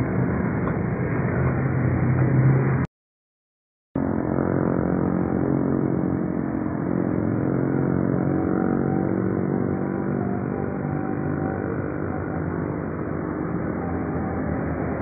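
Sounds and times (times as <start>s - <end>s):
motor running steadily: 4.0s - 15.0s.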